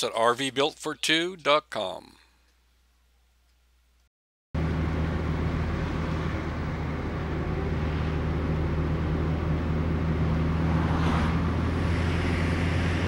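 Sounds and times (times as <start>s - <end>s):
car engine and road noise: 4.6s - 13.0s.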